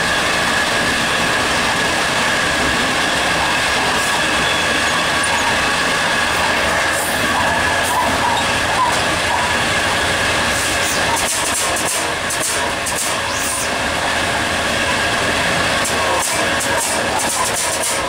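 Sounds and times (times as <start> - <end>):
diesel locomotive engine: 0.0 - 18.0
wheels on rails: 0.0 - 18.0
sharp clicks: 11.1 - 13.3.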